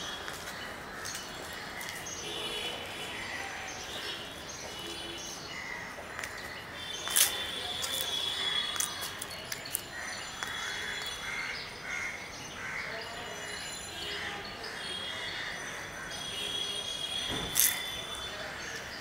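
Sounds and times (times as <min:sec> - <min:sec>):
outdoor background noise: 0:00.0 - 0:19.0
crows cawing: 0:09.9 - 0:13.0.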